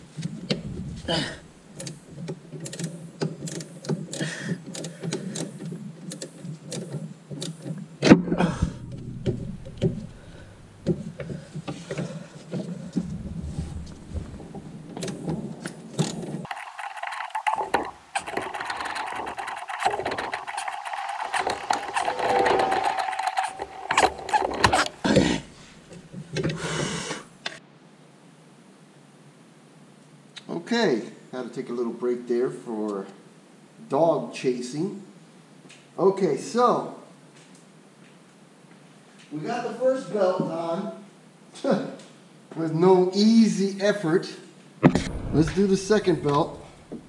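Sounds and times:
rapid mechanical clicking: 1.7s - 7.8s, 8.7s - 11.3s, 13.8s - 26.1s.

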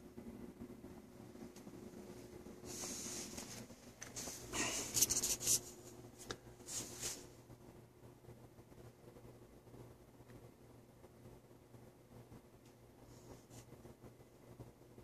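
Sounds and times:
faint steady hum: 0.0s - 15.0s
rustling against microphone: 1.6s - 7.3s.

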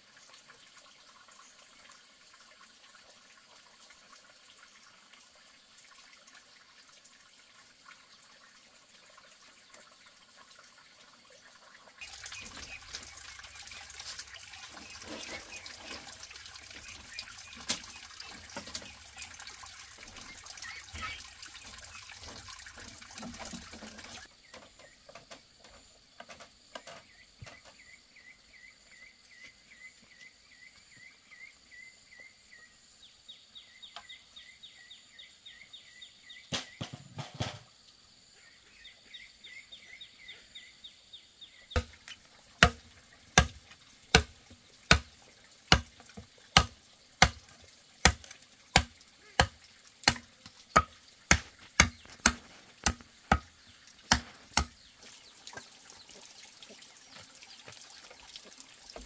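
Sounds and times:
running water: 0.0s - 28.5s, 33.6s - 59.0s
high chirping calls: 20.2s - 22.1s
machete chopping bamboo: 41.8s - 42.0s, 42.6s - 44.3s, 44.9s - 45.1s, 45.7s - 45.9s, 46.6s - 53.5s, 54.1s - 54.8s.

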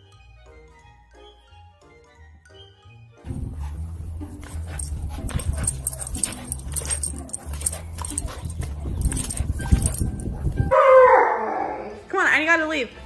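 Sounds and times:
dog whimpering and yipping: 4.4s - 11.8s.

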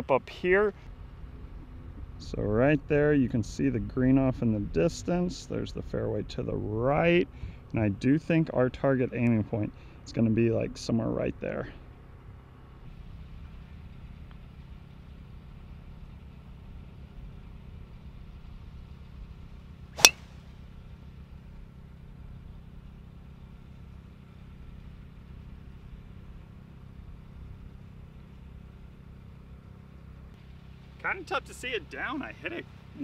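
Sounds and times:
golf club striking ball: 20.0s - 20.4s.

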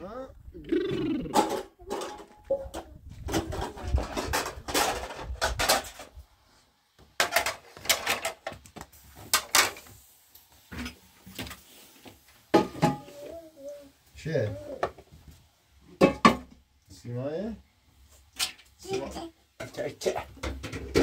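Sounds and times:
objects knocking and clattering: 1.3s - 6.2s, 7.0s - 9.9s, 12.5s - 13.1s, 15.9s - 16.6s, 18.4s - 21.0s.

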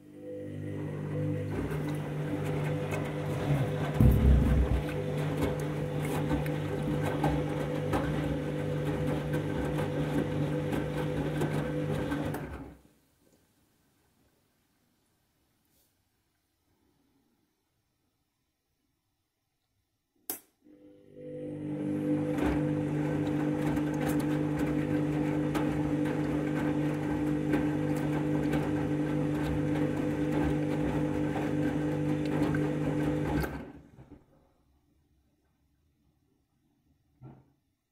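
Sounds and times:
washing machine motor hum: 0.0s - 12.7s, 20.7s - 33.9s
wet laundry splashing in drum: 2.4s - 6.1s
water sloshing in drum: 3.5s - 5.2s.

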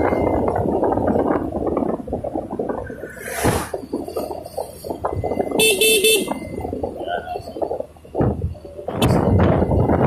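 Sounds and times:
wind on microphone: 0.0s - 10.0s
brief whoosh: 2.9s - 3.9s
short horn beeps: 5.5s - 6.5s.

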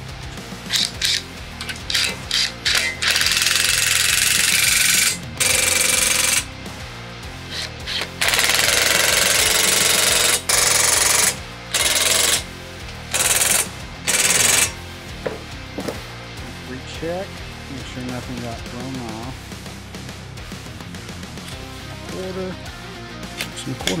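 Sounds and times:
impact driver hammering: 0.7s - 6.5s, 7.5s - 12.5s, 13.1s - 16.0s.

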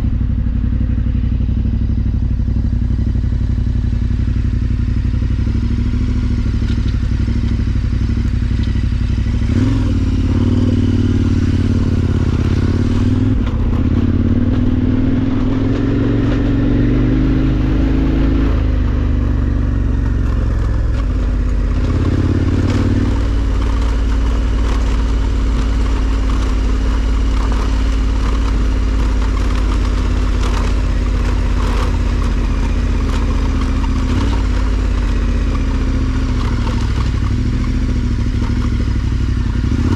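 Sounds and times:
motorcycle engine at low revs: 0.0s - 39.9s
tyres crunching over gravel: 19.5s - 39.9s.

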